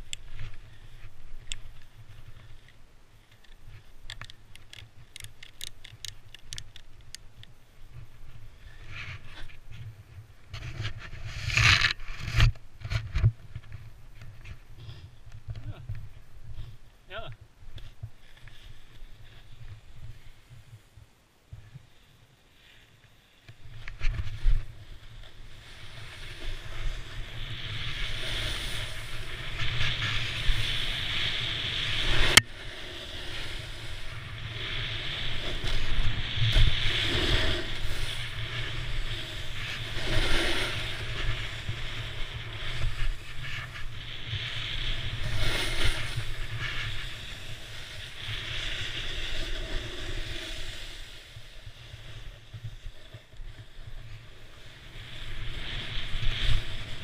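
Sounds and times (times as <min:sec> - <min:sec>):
snowboard hissing through snow: 0:24.3 - 0:57.0.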